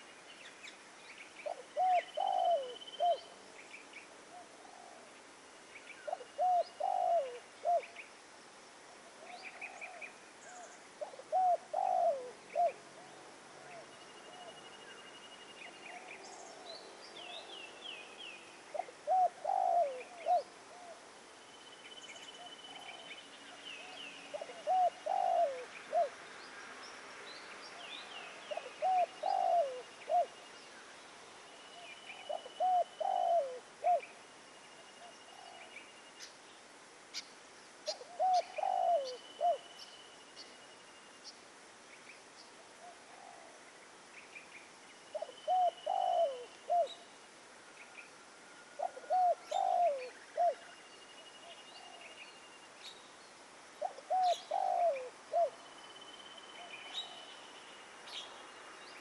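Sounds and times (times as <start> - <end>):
dove cooing: 1.4 - 3.3, 4.3 - 5.2, 6.0 - 7.9, 9.1 - 14.6, 18.7 - 21.0, 23.8 - 26.2, 28.4 - 30.4, 32.1 - 34.1, 37.8 - 39.7, 42.8 - 43.6, 45.1 - 47.0, 48.7 - 50.8, 53.8 - 55.6.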